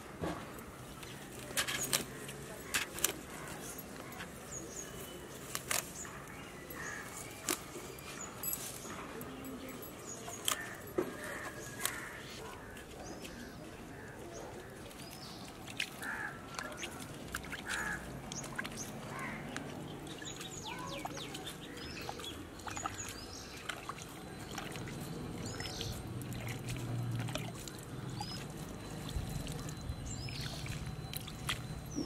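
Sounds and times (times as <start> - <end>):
birds chirping: 0.8 - 32.0
water splashing onto plants: 10.0 - 32.0.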